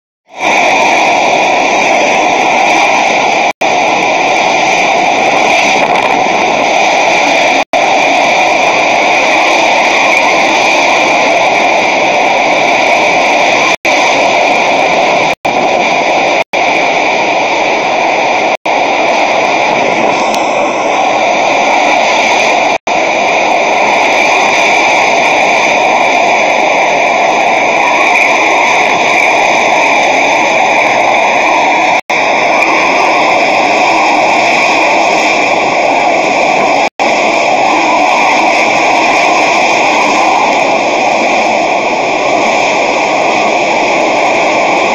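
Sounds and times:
storm wind rushing: 0.2s - 44.9s
driving rain: 0.3s - 44.9s.

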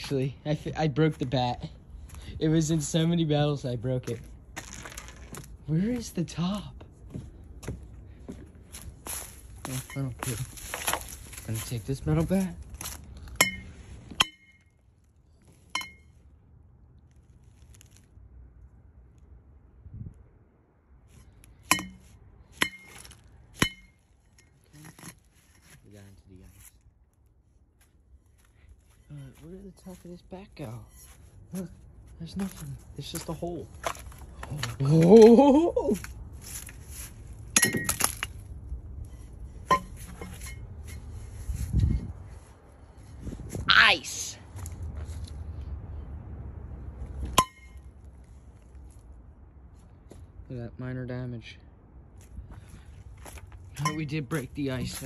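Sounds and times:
metal bat striking ice: 13.3s - 14.7s, 15.6s - 16.1s, 21.6s - 24.5s, 37.5s - 38.4s, 39.6s - 40.6s, 47.2s - 47.9s.

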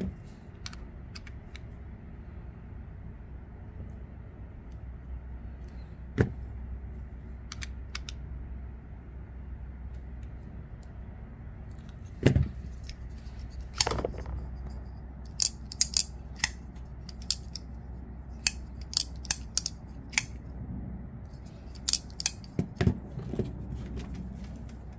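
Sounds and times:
folding knife clicking: 15.3s - 17.7s, 18.4s - 20.4s, 21.7s - 22.6s.

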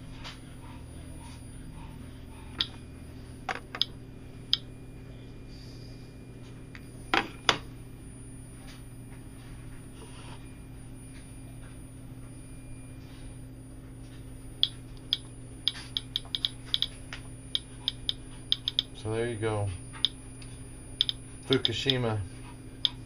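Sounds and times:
low steady hum: 0.0s - 23.0s
geiger counter clicking: 14.6s - 16.9s, 17.5s - 18.9s, 21.0s - 22.1s, 22.8s - 23.0s.

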